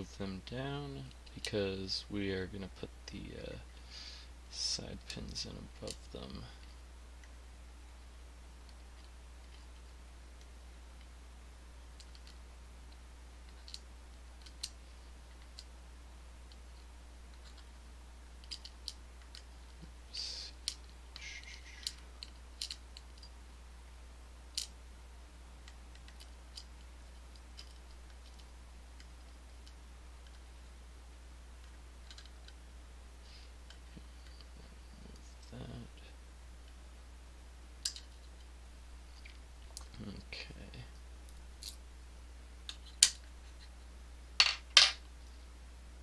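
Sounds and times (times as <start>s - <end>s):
small metal lock parts clicking: 18.4s - 19.4s, 21.7s - 23.3s, 27.6s - 28.5s, 32.0s - 32.6s.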